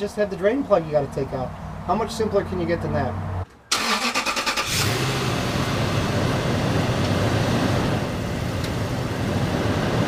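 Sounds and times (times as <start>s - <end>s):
car engine idling: 4.6s - 10.0s.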